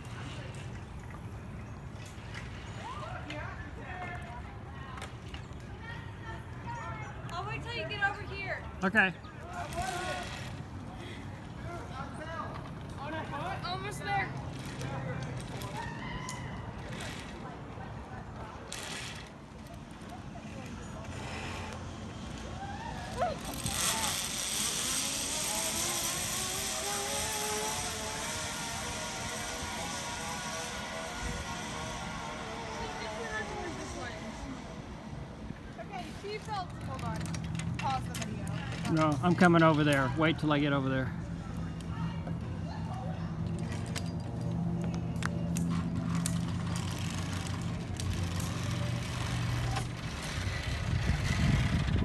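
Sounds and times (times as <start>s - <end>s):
zip line trolley hissing on cable: 18.6s - 36.5s, 45.5s - 52.0s
engine droning: 20.6s - 39.2s.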